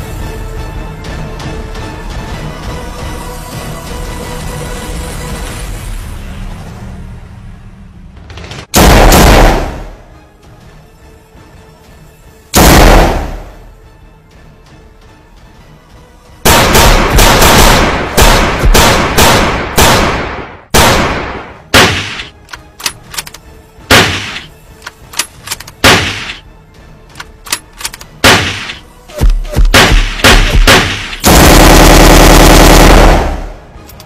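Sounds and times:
single gunshots: 8.8s - 9.9s, 12.6s - 13.5s, 16.5s - 22.3s, 23.9s - 24.5s, 25.8s - 26.4s, 28.2s - 31.8s
machine-gun bursts: 29.8s - 33.3s.

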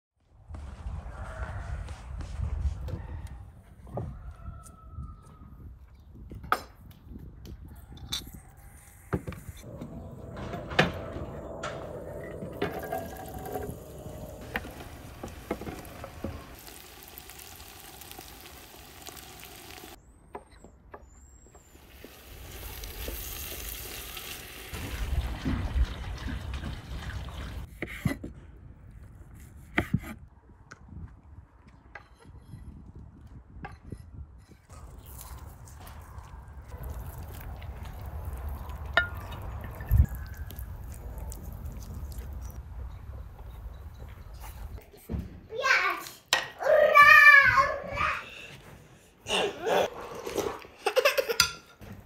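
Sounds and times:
pot simmering: 11.6s - 20.0s.

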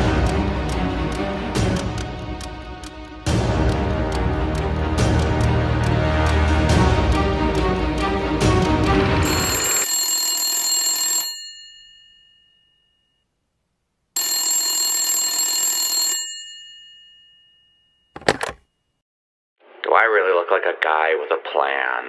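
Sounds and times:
intro music: 0.0s - 9.5s
telephone bell ringing: 9.2s - 13.2s, 14.2s - 18.4s.

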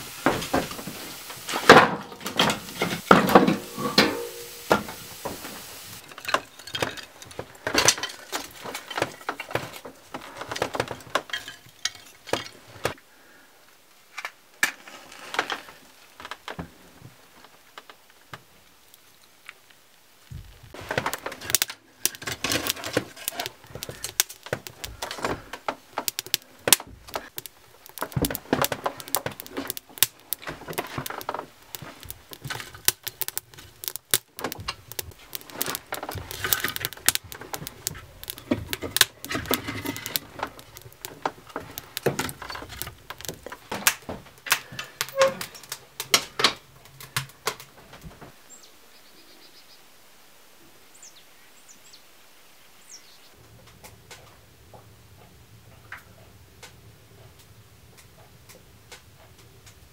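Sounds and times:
handling knocks and clicks: 6.0s - 13.0s, 20.4s - 48.3s.

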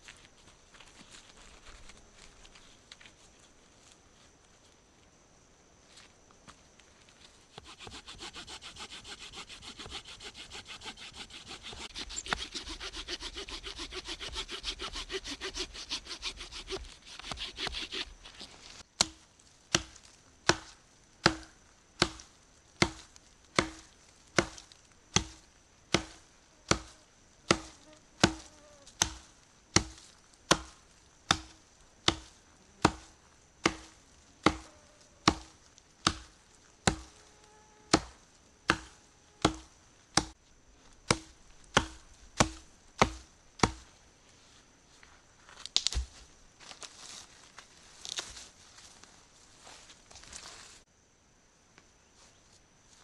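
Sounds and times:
hand saw cutting wood: 7.5s - 18.4s
axe chopping wood: 19.0s - 37.1s, 37.9s - 40.4s, 41.0s - 43.8s, 45.8s - 46.2s.

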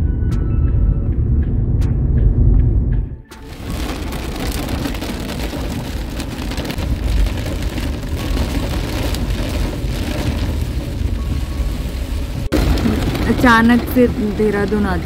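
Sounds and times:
road noise rumble: 0.0s - 15.0s
heavy rain on car windscreen: 3.3s - 15.0s.

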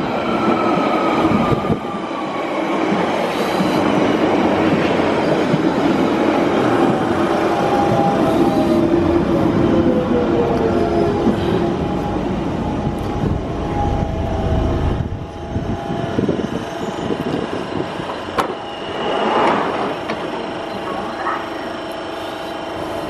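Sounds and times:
train rumble: 2.8s - 23.0s
train doors opening: 6.8s - 21.4s.

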